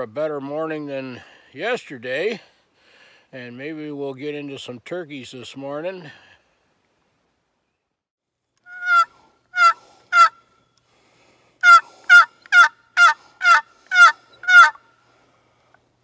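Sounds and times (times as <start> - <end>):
turkey box call yelps: 8.7 - 10.4, 11.6 - 14.8.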